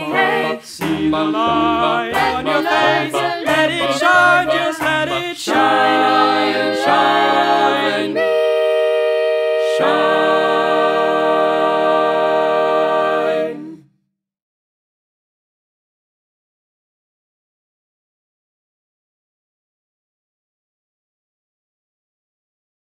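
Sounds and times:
group singing in harmony: 0.0 - 13.9.

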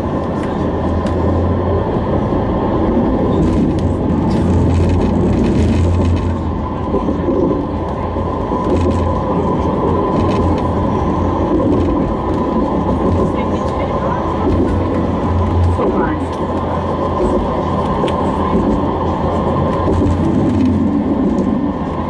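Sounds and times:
tram rumbling on rails: 0.0 - 22.0.

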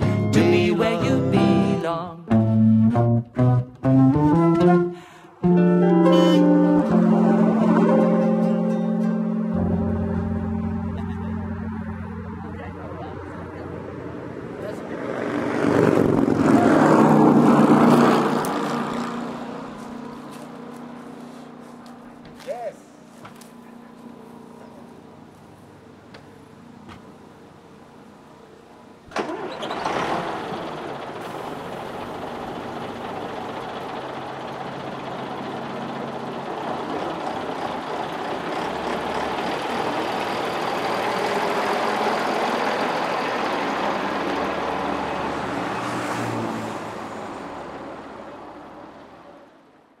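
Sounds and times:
bus diesel engine running: 0.0 - 50.0
engine clunk: 29.0 - 45.2.

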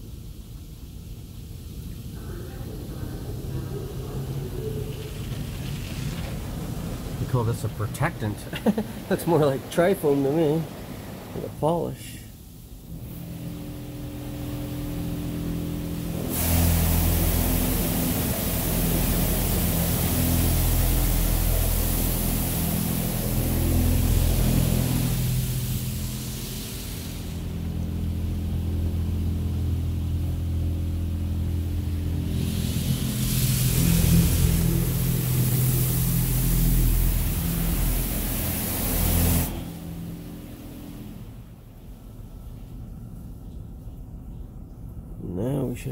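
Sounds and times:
low mechanical hum: 0.0 - 45.9
car wash spray hitting van: 12.8 - 41.6.

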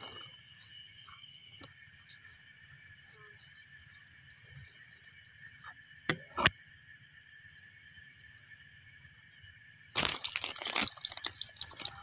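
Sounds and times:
night insects chorus: 0.0 - 12.0
bird distress chirps: 10.0 - 12.0
leaves rustling: 10.0 - 12.0.

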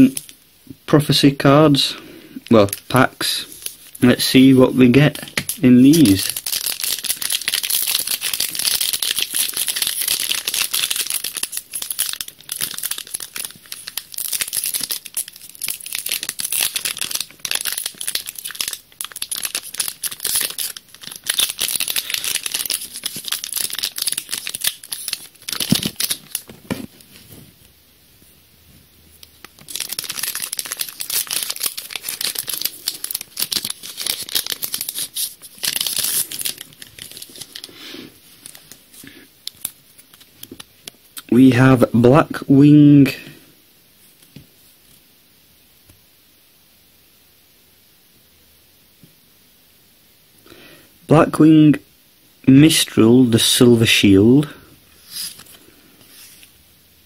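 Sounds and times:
foil wrapper crinkling and tearing: 2.7 - 26.7, 29.3 - 41.0, 55.0 - 55.7.

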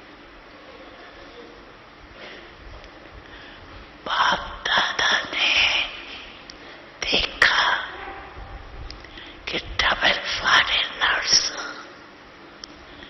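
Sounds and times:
woman speaking softly: 7.0 - 8.7, 9.5 - 11.9.

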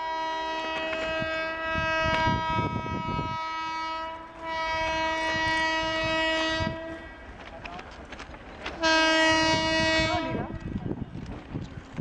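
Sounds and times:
locomotive horn blasts: 0.0 - 7.2, 8.8 - 10.4
low train rumble: 0.0 - 12.0.

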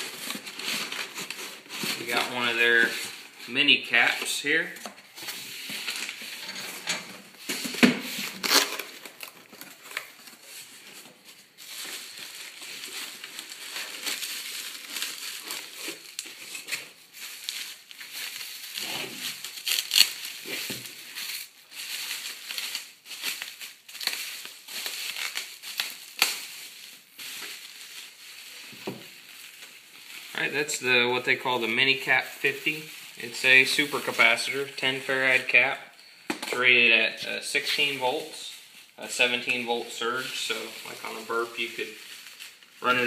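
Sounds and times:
bubble wrap crinkling: 0.0 - 6.5, 7.2 - 35.8, 37.5 - 43.0.

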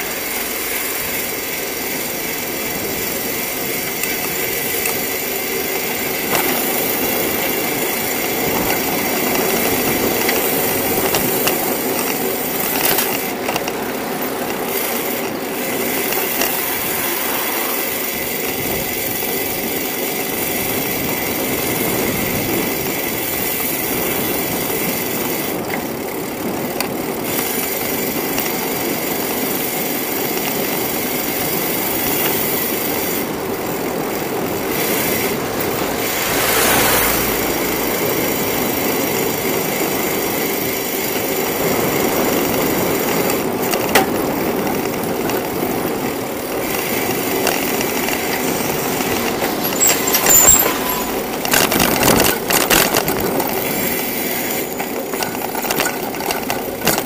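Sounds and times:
bicycle riding rumble: 0.0 - 57.0
traffic noise: 0.0 - 57.0
sharp clicks and rattles: 54.6 - 57.0.

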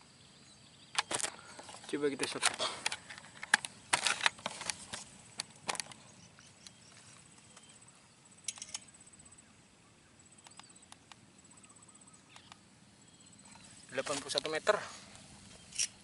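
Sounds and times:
faint clicks: 10.4 - 12.6.

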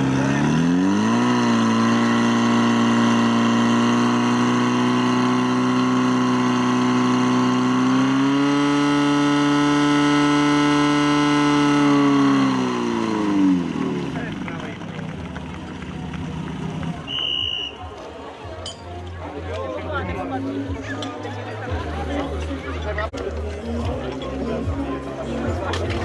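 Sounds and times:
pump engine running at high revs: 0.0 - 17.7.

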